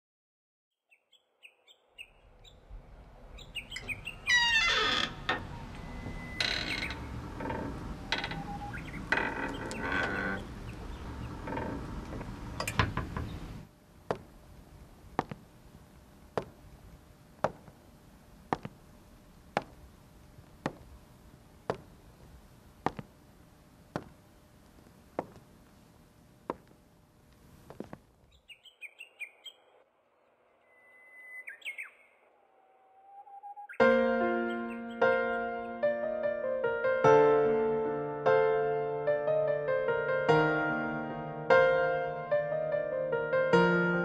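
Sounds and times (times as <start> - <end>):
birds chirping: 0.7 - 15.6, 27.6 - 29.8, 30.6 - 35.8
heel steps on wooden stage: 14.1 - 14.4, 15.1 - 16.7, 17.4 - 17.8, 18.5 - 18.9, 19.5 - 21.0, 21.6 - 23.2, 23.9 - 25.8, 26.4 - 26.8, 27.6 - 28.1.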